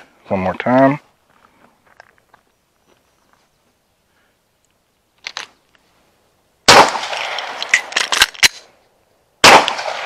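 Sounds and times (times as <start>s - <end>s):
pistol shot echoing: 6.7s - 7.9s, 9.4s - 10.0s.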